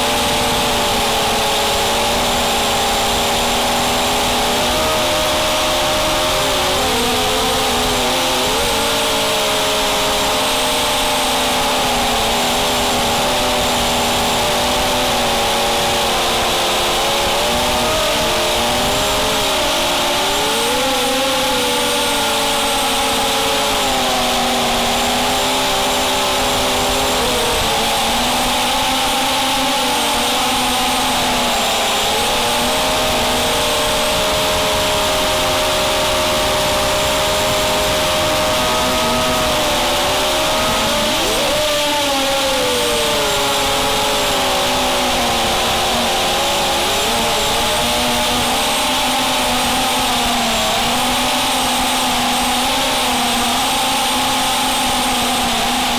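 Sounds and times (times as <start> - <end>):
drone motors whining: 0.0 - 55.9
prop wash and wind rush: 25.9 - 44.5.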